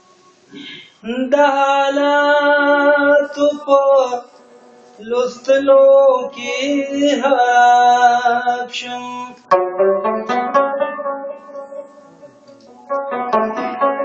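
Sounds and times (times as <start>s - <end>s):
plucked lute notes: 9.5s - 14.0s.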